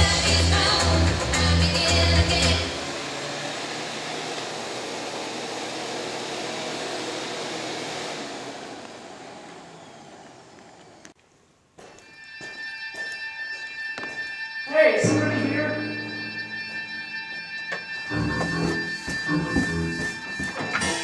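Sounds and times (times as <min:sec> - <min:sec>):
music: 0:00.0 - 0:02.8, 0:12.0 - 0:21.0
vacuum cleaner running on carpet: 0:02.8 - 0:11.1.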